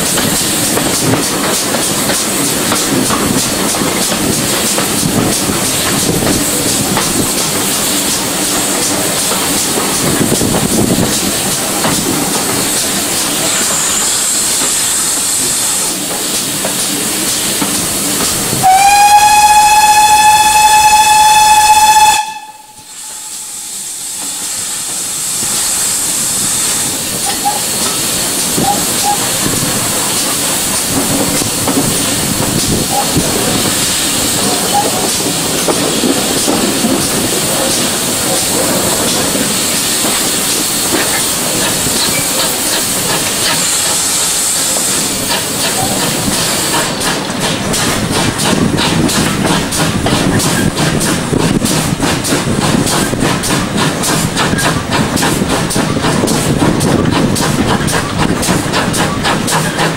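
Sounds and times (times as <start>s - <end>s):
steam engine beat: 0.0s - 59.9s
steam hissing: 0.0s - 59.9s
steam whistle: 18.6s - 24.2s.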